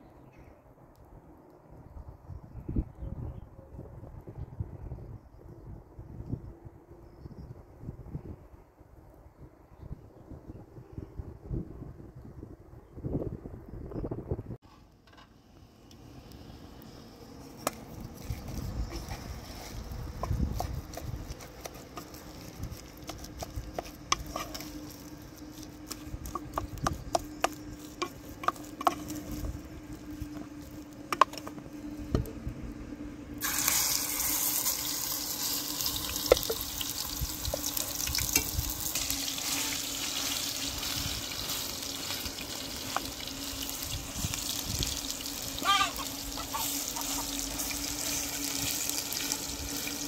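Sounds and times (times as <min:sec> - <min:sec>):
batter sizzling in hot oil: 0:16.2 - 0:30.1, 0:33.4 - 0:50.0
wooden spoon scraping pot: 0:18.2 - 0:29.6.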